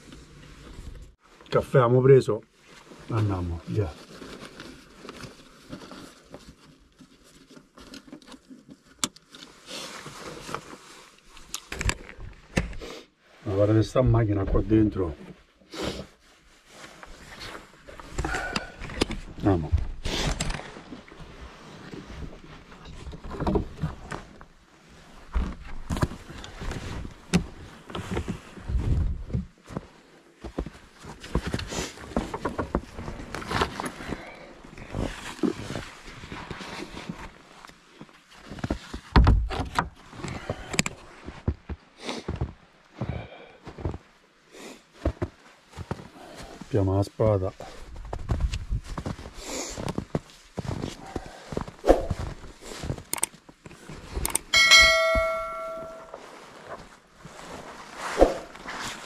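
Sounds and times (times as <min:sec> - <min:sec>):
clothing rustling: 0:02.5 - 0:12.5, 0:47.8 - 0:59.0.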